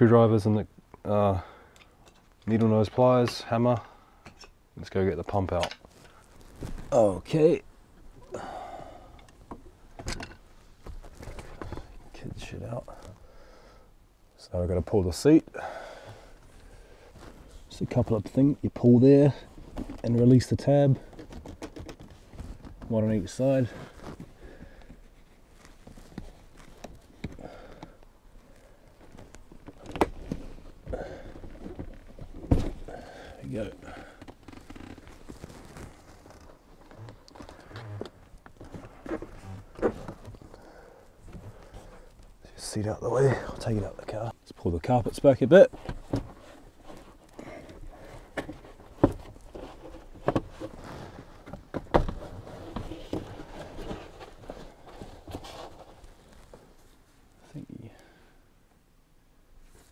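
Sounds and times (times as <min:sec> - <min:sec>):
carpet rustling and scuffing: 0:10.6 - 0:13.2, 0:21.4 - 0:27.4, 0:33.5 - 0:40.5, 0:44.8 - 0:57.2
handling clicks and knocks: 0:20.9 - 0:22.9.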